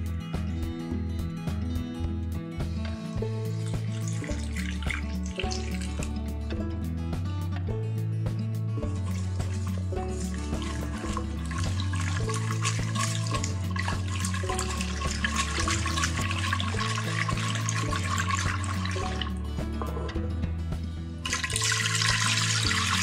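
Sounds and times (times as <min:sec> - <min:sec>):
background music with bass: 0:00.0 - 0:23.0
whisk beating in a pot: 0:03.3 - 0:06.1, 0:08.9 - 0:19.4, 0:21.3 - 0:23.0
milk pouring into a pot: 0:03.4 - 0:06.1, 0:08.9 - 0:19.4, 0:21.3 - 0:23.0.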